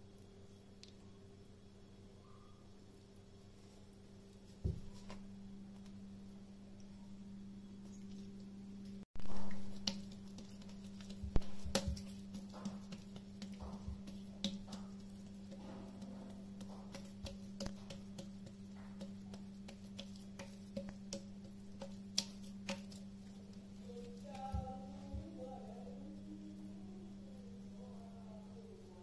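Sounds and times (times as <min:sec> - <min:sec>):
steady low hum: 0:00.0 - 0:29.0
hands patting dough: 0:04.3 - 0:06.0, 0:08.8 - 0:26.7.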